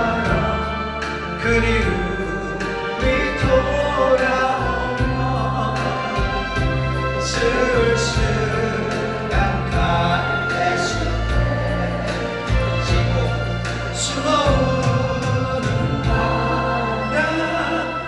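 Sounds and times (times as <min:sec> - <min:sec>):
ballad backing track with bass: 0:00.0 - 0:18.0
group of voices singing: 0:00.0 - 0:18.0
man singing into microphone: 0:00.0 - 0:18.0.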